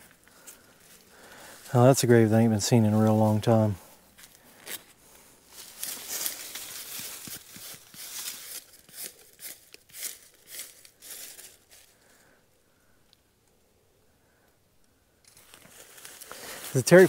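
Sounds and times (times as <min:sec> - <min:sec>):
dry leaves rustling and scraping: 0:04.2 - 0:12.0, 0:15.3 - 0:17.0.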